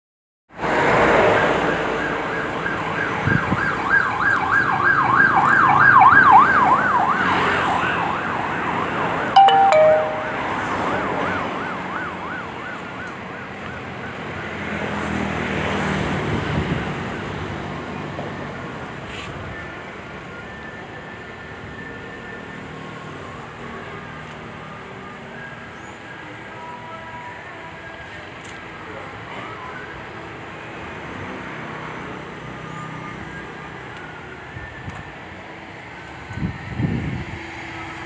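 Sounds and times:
two-note beep: 0:09.4 - 0:10.8.

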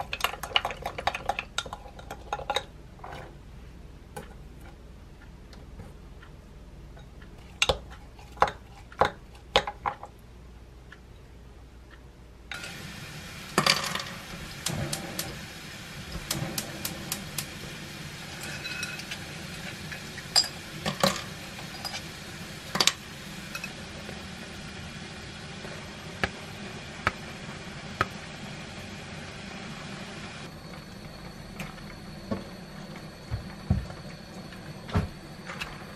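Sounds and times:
oil sizzling in a frying pan: 0:12.5 - 0:35.9.

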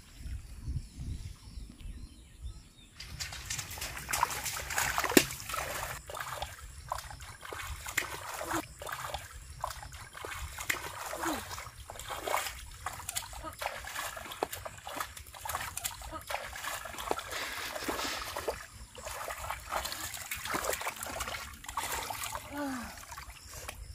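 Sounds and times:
splashing in shallow water: 0:03.0 - 0:23.9
sharp slap of water: 0:03.3 - 0:06.4.

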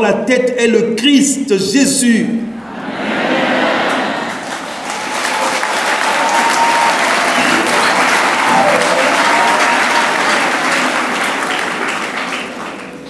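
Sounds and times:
crowd applauding: 0:03.8 - 0:13.0.

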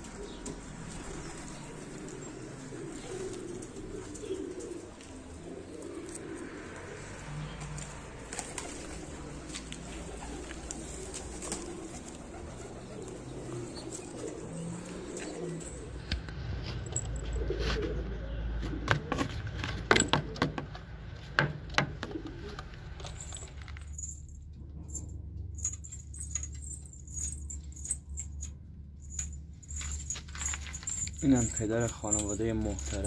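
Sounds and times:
pigeons cooing: 0:00.0 - 0:20.9, 0:21.8 - 0:24.2, 0:29.1 - 0:33.0
sharp clicks and rattles: 0:23.0 - 0:33.0.

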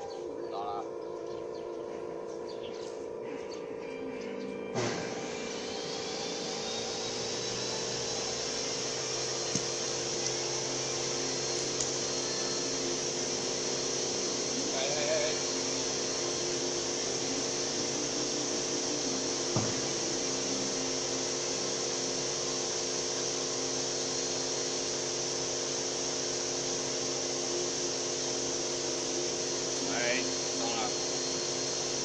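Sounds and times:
mechanical hum with high hiss: 0:00.0 - 0:32.0
single knock: 0:19.6 - 0:19.9.

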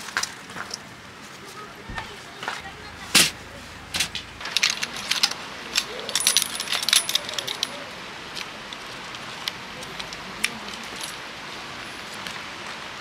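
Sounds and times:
metal stand clinking and rattling: 0:03.1 - 0:07.9, 0:10.6 - 0:11.2.

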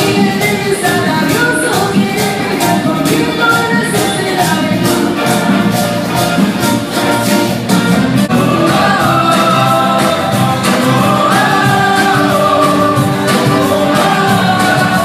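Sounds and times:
live band with singer: 0:00.0 - 0:15.0.

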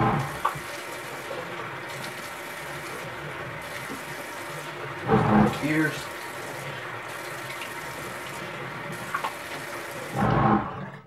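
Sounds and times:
tap running into a sink: 0:00.3 - 0:00.8, 0:03.7 - 0:04.2, 0:09.0 - 0:09.7.

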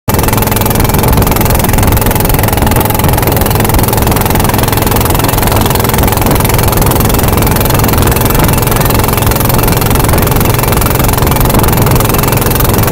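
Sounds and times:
boat engine running: 0:00.1 - 0:12.9
water rushing: 0:00.1 - 0:12.9.

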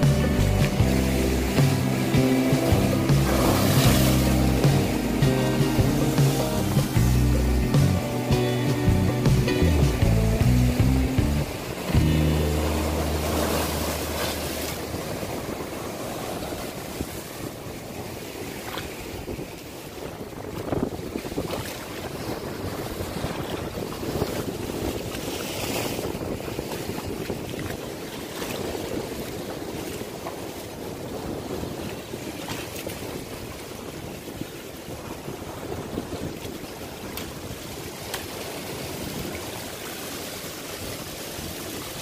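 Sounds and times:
low background music: 0:00.0 - 0:14.6
surf washing over rocks: 0:00.0 - 0:42.0
wave crashing and splashing: 0:00.0 - 0:42.0
wind noise on microphone: 0:00.0 - 0:42.0.

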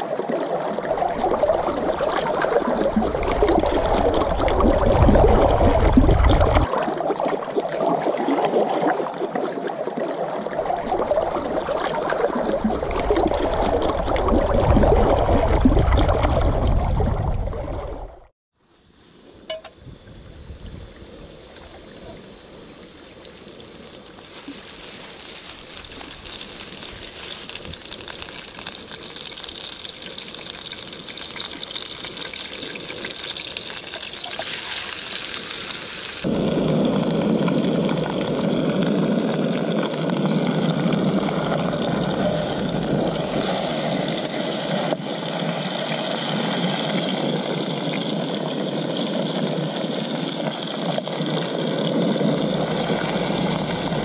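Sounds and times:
fish frying in oil: 0:22.7 - 0:44.7, 0:45.4 - 0:54.0.

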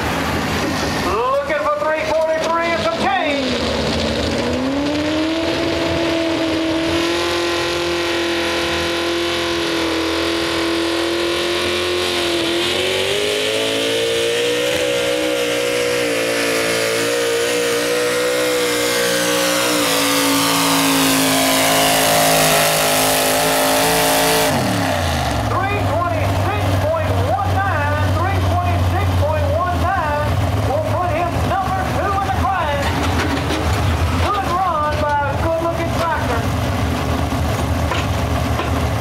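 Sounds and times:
tractor engine at high revs: 0:00.0 - 0:39.0.

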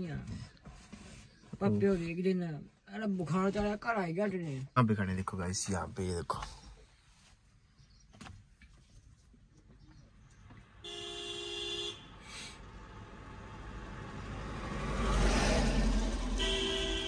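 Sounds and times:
car engine and road noise: 0:00.0 - 0:17.0
vehicle horn honking: 0:10.8 - 0:12.2, 0:16.3 - 0:17.0.

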